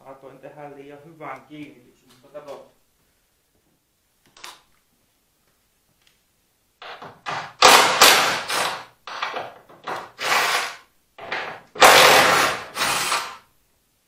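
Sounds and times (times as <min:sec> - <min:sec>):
impact driver rattling on screws: 0:06.8 - 0:13.4.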